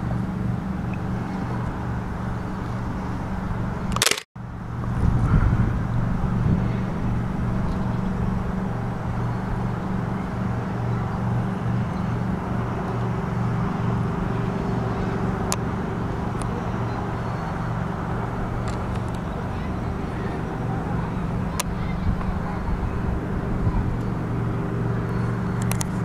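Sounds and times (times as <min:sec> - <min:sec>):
low engine hum: 0:00.0 - 0:26.0
sharp click: 0:03.9 - 0:04.3.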